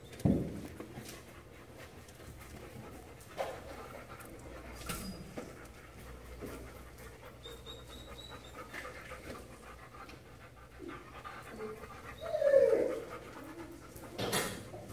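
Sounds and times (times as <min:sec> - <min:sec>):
dog panting: 0:00.6 - 0:14.9
dog vocal sound: 0:03.0 - 0:14.9.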